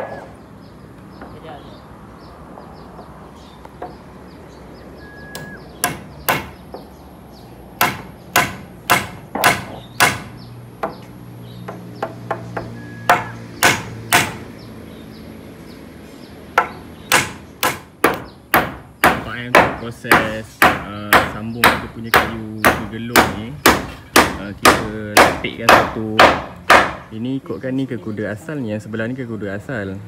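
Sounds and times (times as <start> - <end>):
hammer driving nails: 7.8 - 11.0, 11.7 - 14.4, 16.6 - 27.0.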